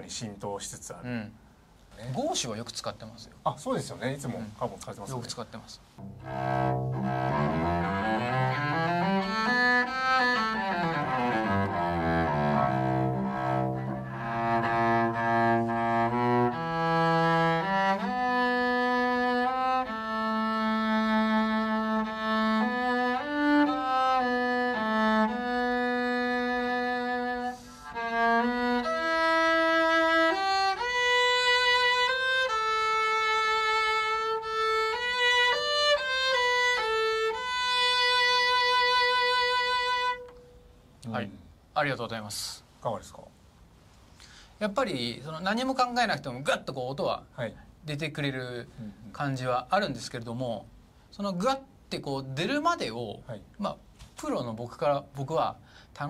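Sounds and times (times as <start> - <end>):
solo cello bowed: 6.0 - 40.7.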